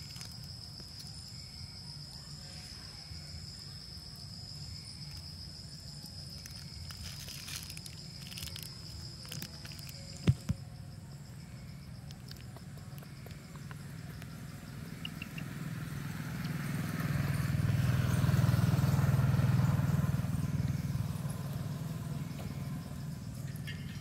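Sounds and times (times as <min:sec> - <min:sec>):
vehicle passing by: 0:13.8 - 0:24.0.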